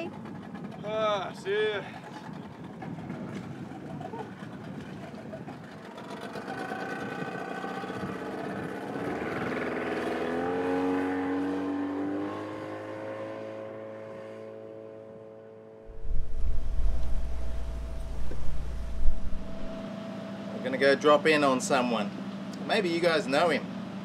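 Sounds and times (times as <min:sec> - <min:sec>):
outboard motor pulling away: 0:00.0 - 0:24.0.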